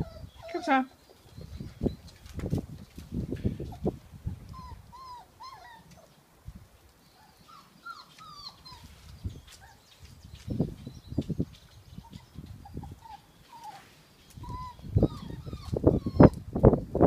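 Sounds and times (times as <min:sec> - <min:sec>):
puppies whimpering: 0:00.0 - 0:01.7, 0:03.7 - 0:06.2, 0:07.1 - 0:10.1, 0:11.9 - 0:16.4.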